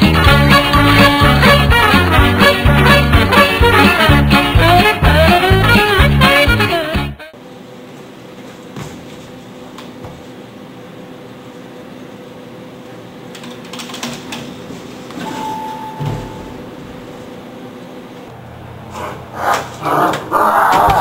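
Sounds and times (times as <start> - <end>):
elevator hum: 14.3 - 21.0
elevator doors opening: 15.1 - 17.0
elevator chime: 15.2 - 16.7.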